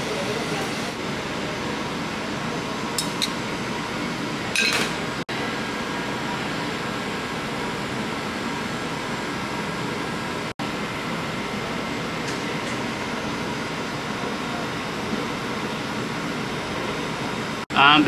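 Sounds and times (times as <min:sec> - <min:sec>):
kitchen ventilation fan: 0:00.0 - 0:18.0.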